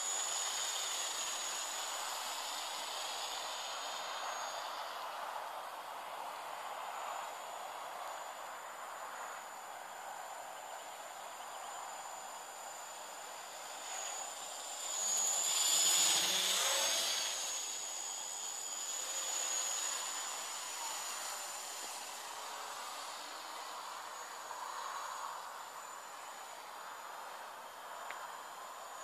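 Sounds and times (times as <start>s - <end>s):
drone propellers buzzing: 0.0s - 5.9s, 11.7s - 26.6s.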